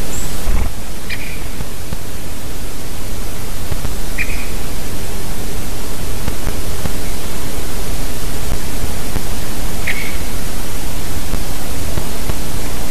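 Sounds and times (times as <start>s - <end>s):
wind on microphone: 0.0s - 2.1s
woodpecker call: 4.2s - 4.6s, 9.8s - 10.2s.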